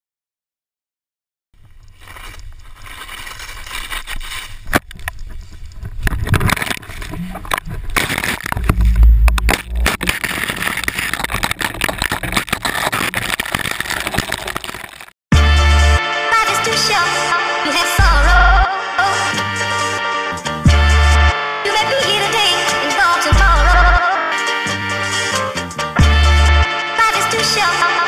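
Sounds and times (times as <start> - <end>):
low wind buffeting: 4.5 - 12.0.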